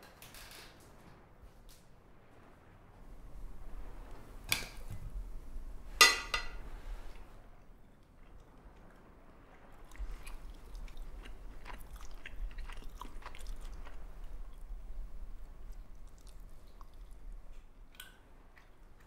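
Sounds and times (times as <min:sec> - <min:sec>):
person chewing crunchy food: 0:09.8 - 0:14.8, 0:15.7 - 0:17.2.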